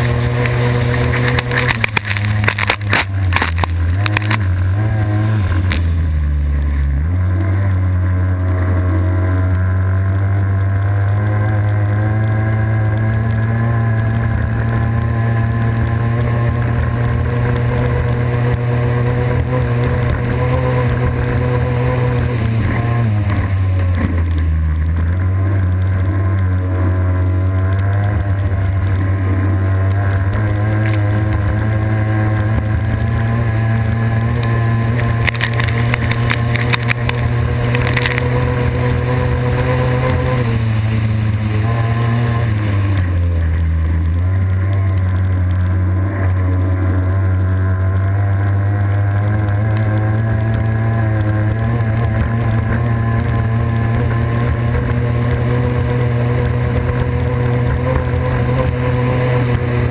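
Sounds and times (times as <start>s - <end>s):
racing boat engine high revs: 0.0s - 59.9s.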